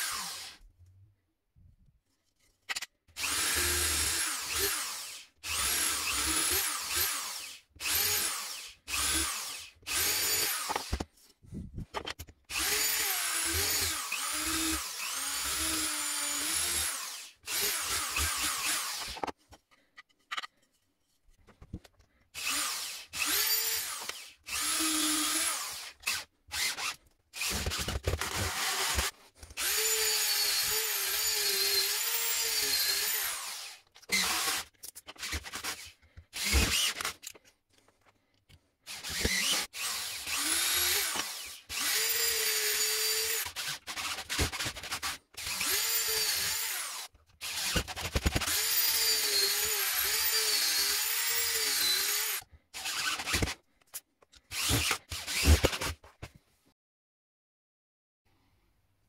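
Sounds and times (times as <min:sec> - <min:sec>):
electric drill drilling wood: 0:00.0 - 0:00.6, 0:03.2 - 0:11.0, 0:12.5 - 0:19.2, 0:22.4 - 0:37.1, 0:38.9 - 0:44.4, 0:45.0 - 0:53.6, 0:54.5 - 0:56.0.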